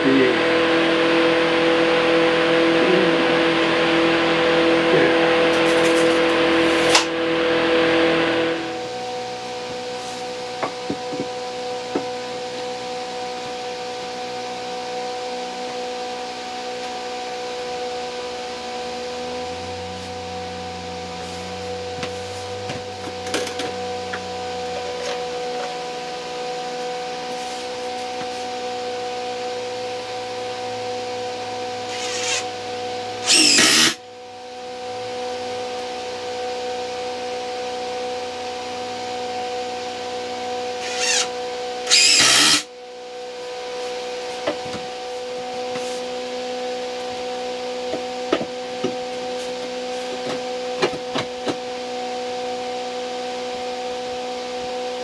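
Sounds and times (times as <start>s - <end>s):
cordless drill driving screws: 31.9s - 32.5s, 33.2s - 34.0s, 40.8s - 41.3s, 41.9s - 42.7s.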